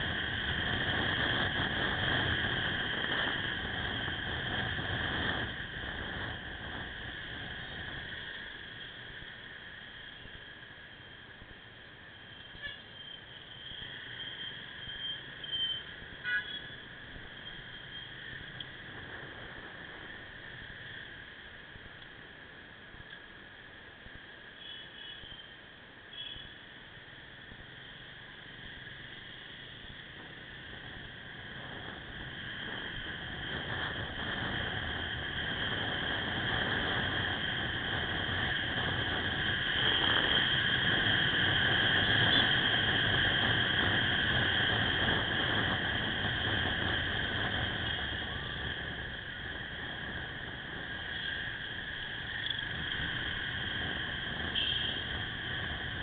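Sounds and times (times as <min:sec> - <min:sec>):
high-pitched whine: 0:00.0 - 0:56.0
motorcycle engine: 0:52.4 - 0:55.9.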